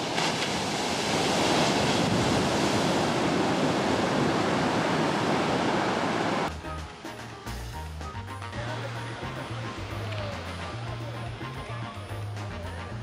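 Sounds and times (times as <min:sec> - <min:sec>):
ocean surf breaking: 0:00.0 - 0:06.5.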